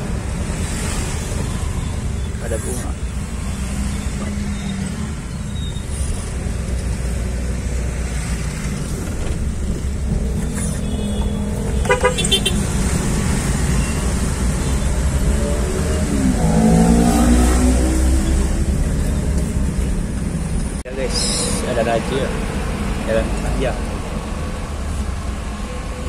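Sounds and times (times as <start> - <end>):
car engine and road noise: 0.0 - 26.0
vehicle horn short beeps: 10.8 - 12.6.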